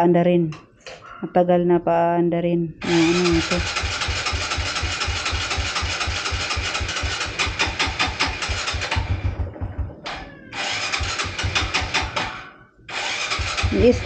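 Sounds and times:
motorcycle starter cranking engine: 2.8s - 14.0s.

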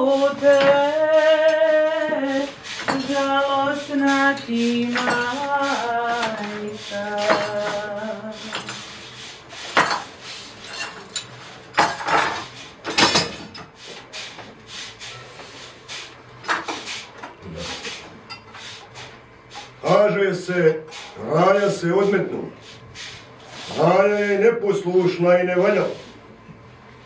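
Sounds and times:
woman singing: 0.0s - 8.6s
dishes and cutlery clinking: 2.8s - 7.9s, 9.7s - 13.8s, 18.2s - 18.6s.

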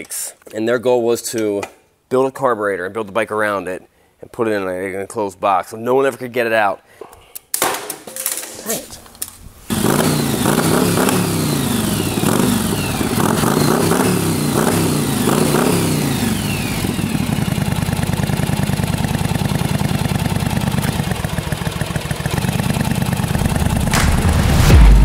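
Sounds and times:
motorcycle engine revving and idling: 9.7s - 25.0s.

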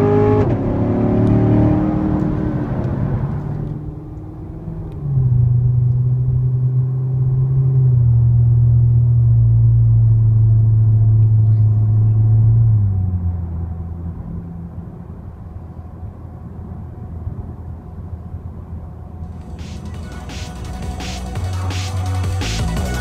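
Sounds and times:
car engine droning: 0.0s - 23.0s.

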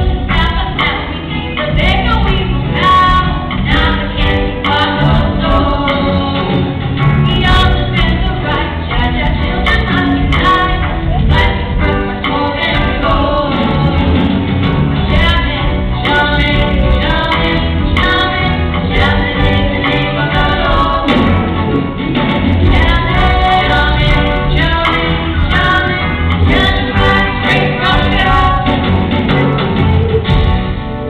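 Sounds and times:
female lead vocals: 0.0s - 14.4s, 15.0s - 21.4s, 22.6s - 30.0s
bass guitar: 0.0s - 31.0s
drums: 0.0s - 31.0s
choir singing along: 2.9s - 30.1s.

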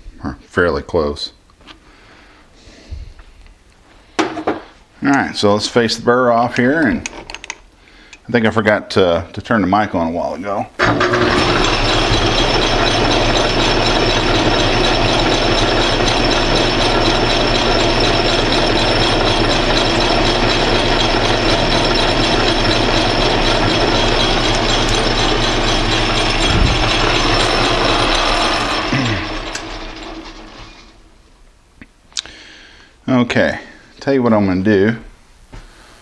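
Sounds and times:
metal lathe running: 10.8s - 31.0s.

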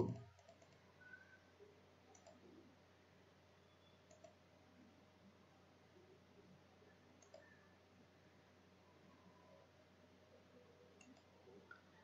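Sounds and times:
computer mouse clicks: 0.0s - 1.2s, 2.1s - 2.5s, 4.0s - 4.4s, 7.2s - 7.6s, 11.0s - 11.9s.

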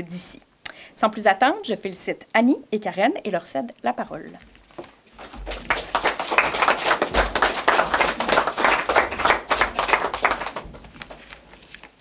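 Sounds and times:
audience applauding: 5.2s - 10.8s.

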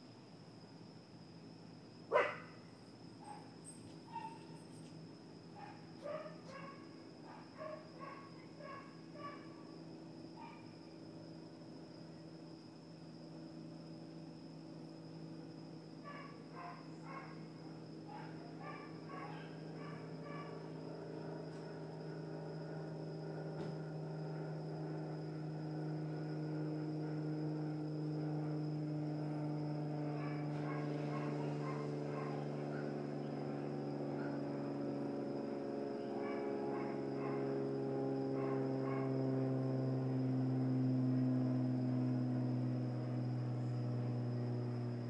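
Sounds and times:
steady hum: 0.0s - 45.0s.

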